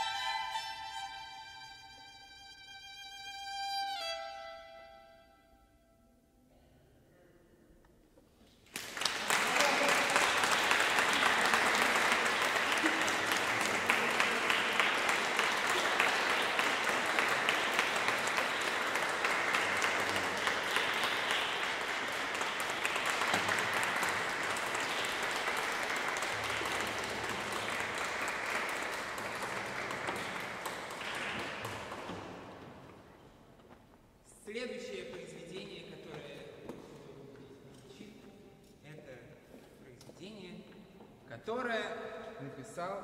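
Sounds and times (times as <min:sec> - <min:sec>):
audience applauding: 0:08.6 - 0:33.2.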